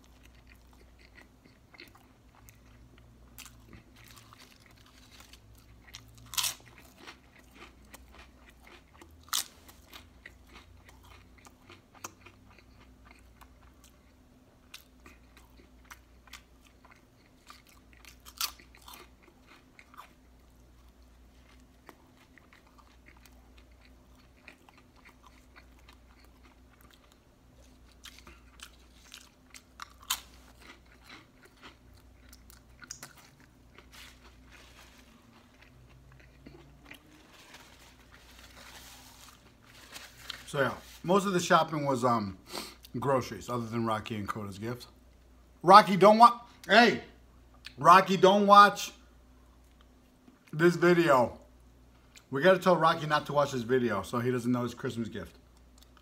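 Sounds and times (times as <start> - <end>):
chewing and wet mouth sounds: 0.0 - 41.2.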